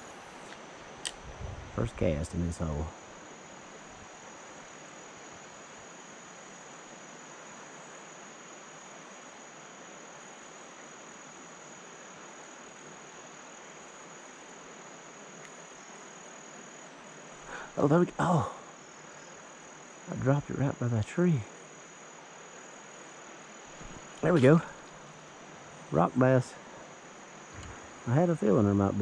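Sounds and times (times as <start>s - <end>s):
faint even hiss: 0.0s - 29.0s
insects trilling: 0.0s - 29.0s.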